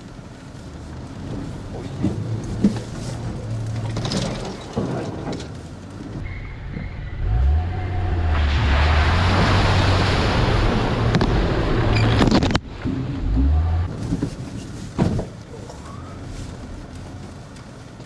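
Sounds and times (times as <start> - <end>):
car engine pulling: 0.0 - 18.0
water and mud splashing: 7.3 - 14.5.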